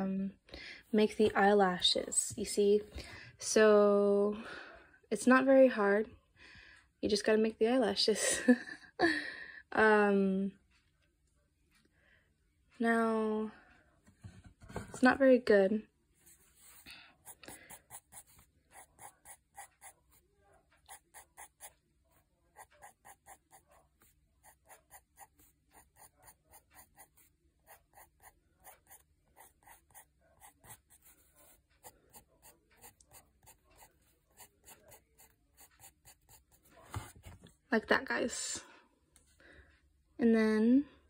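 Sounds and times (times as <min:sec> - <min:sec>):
pencil strokes on paper: 0:16.2 - 0:37.3.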